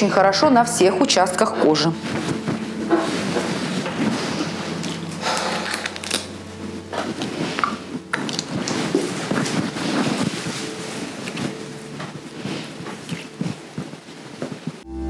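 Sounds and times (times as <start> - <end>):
towel patting face: 2.0 - 14.8
small bottle handled: 6.9 - 11.6.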